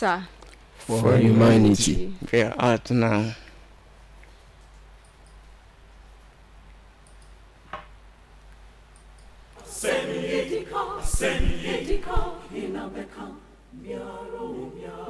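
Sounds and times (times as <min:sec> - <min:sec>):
choir singing: 0:09.6 - 0:15.0
deep thuds: 0:11.0 - 0:12.4.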